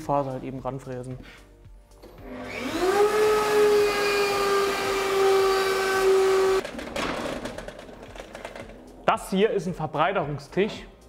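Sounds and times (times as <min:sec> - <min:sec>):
router motor whine: 0:02.2 - 0:06.6.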